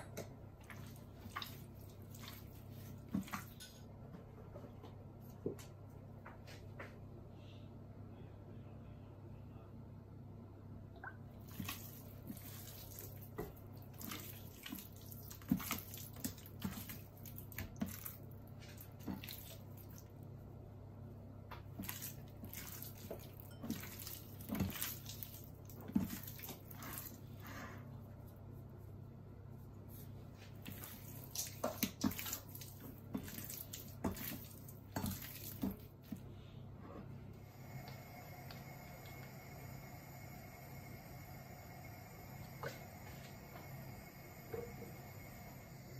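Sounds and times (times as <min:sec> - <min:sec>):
faint low hum: 0:00.0 - 0:45.9
wet squelches of raw chicken: 0:00.6 - 0:03.6, 0:11.4 - 0:20.2, 0:29.6 - 0:36.3.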